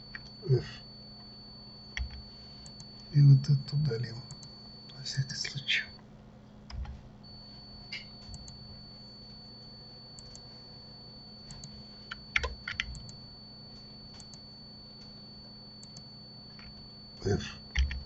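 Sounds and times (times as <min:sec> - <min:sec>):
faint high whine: 0:00.0 - 0:18.0
low electrical hum: 0:00.0 - 0:18.0
keyboard and mouse clicks: 0:02.0 - 0:02.9, 0:07.9 - 0:08.6, 0:11.5 - 0:13.2, 0:17.7 - 0:18.0.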